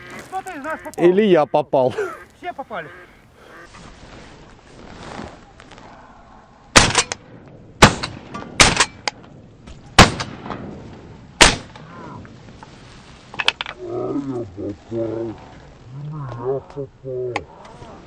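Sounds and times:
shotgun shots: 6.8s - 7.2s, 7.8s - 9.0s, 10.0s - 10.6s, 11.4s - 11.7s.

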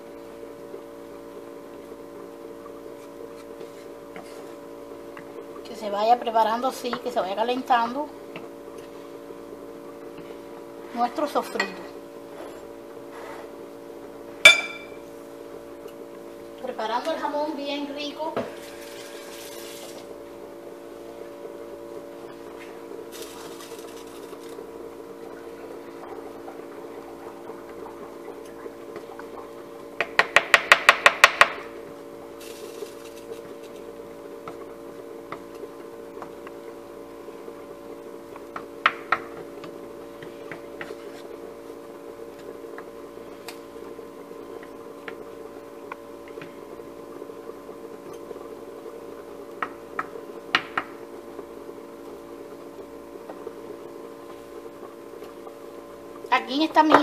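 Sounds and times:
wooden spoon knocking frying pan: 30.0s - 31.6s.

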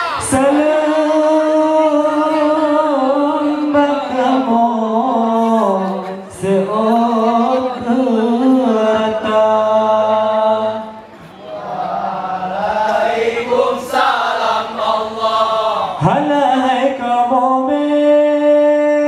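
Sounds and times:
man chanting: 0.2s - 10.9s, 15.8s - 19.0s.

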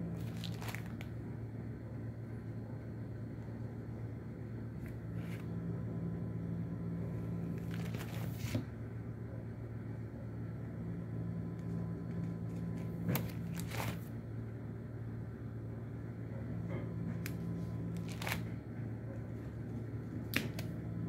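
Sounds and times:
steady low hum: 0.0s - 21.0s
album pages rustling: 0.2s - 1.1s, 4.8s - 5.5s, 7.5s - 8.7s, 12.0s - 14.2s, 17.2s - 18.6s.

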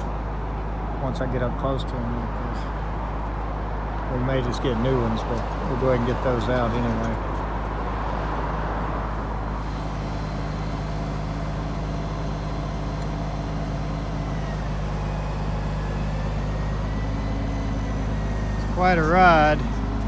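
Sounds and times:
truck engine running: 8.8s - 20.0s.

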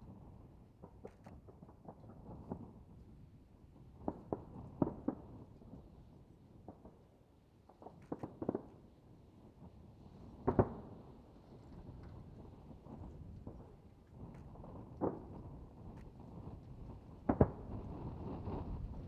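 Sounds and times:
distant fireworks bursting: 12.8s - 19.0s.

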